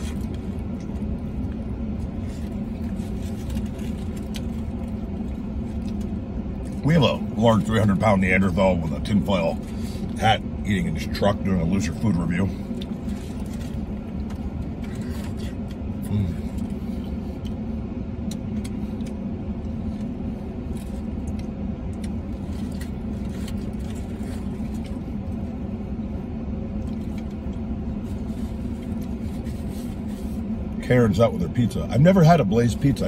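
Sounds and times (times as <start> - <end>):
chewing: 0.0 - 6.8, 18.2 - 25.4.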